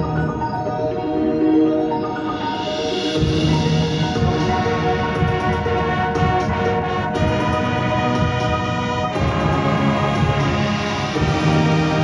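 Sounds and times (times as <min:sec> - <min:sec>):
brass and woodwinds playing chords: 0:03.2 - 0:12.0.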